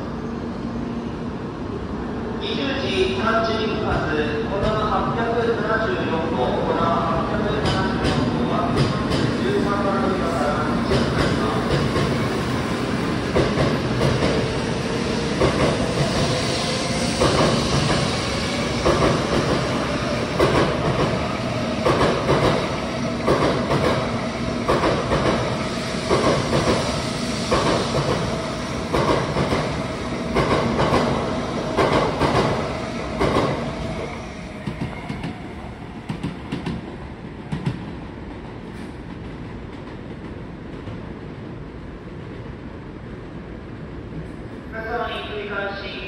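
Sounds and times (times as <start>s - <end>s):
train rumble and hiss: 0.0s - 46.0s
train wheels clattering: 21.8s - 24.0s.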